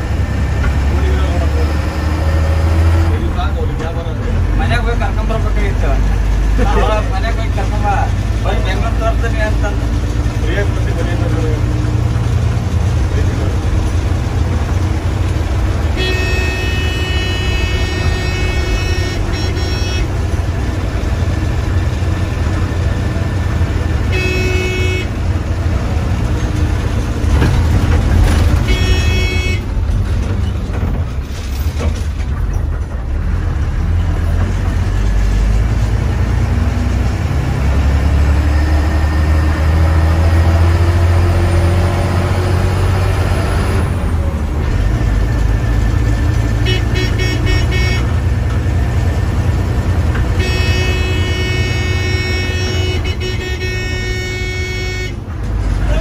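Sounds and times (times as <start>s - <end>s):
bus diesel engine rumbling: 0.0s - 56.0s
vehicle horn blasts: 15.9s - 20.3s, 24.1s - 25.2s, 28.6s - 29.7s, 46.6s - 48.3s, 50.3s - 55.2s.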